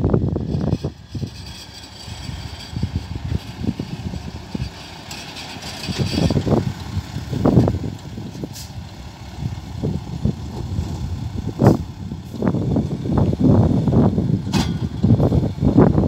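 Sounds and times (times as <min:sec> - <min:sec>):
dump truck diesel engine rumble: 0:00.0 - 0:16.0.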